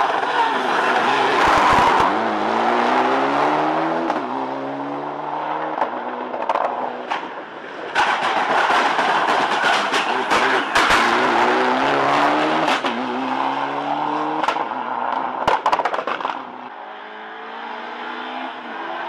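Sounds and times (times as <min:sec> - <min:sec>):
rally car engine accelerating: 0:00.3 - 0:06.4, 0:09.8 - 0:14.6
exhaust pops and crackles: 0:14.4 - 0:16.4.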